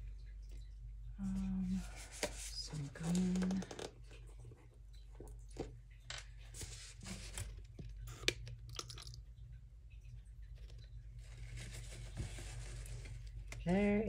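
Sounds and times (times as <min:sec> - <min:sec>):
steady low hum: 0:00.0 - 0:14.0
plastic containers clicking and crinkling: 0:03.0 - 0:06.3.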